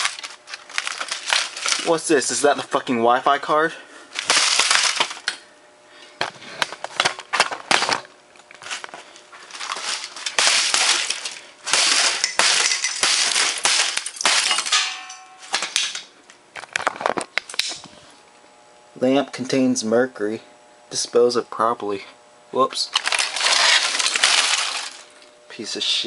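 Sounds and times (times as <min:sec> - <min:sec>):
hammer smashing plastic laptop: 0:00.0 - 0:02.0, 0:04.2 - 0:05.3, 0:09.5 - 0:16.0, 0:23.0 - 0:25.1.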